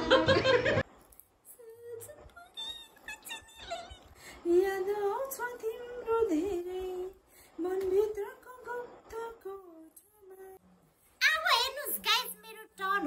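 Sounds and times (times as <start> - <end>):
woman singing unaccompanied: 1.5 - 10.6.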